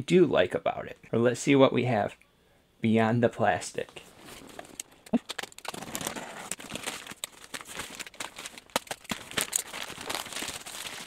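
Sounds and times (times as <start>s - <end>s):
plastic wrapping crinkling: 4.0s - 11.0s.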